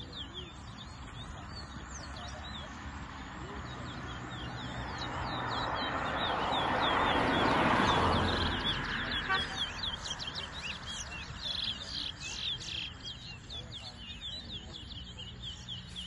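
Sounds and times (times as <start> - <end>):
murmur of voices: 0.0 - 16.0
finches chirping and whistling: 3.7 - 16.0.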